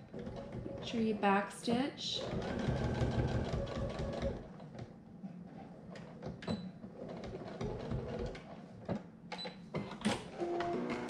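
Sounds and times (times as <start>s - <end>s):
sewing machine stopping: 2.2s - 4.4s.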